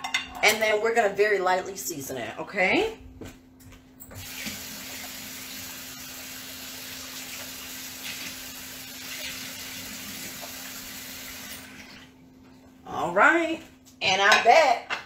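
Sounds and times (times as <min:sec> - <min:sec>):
faucet water running: 0:04.1 - 0:12.2.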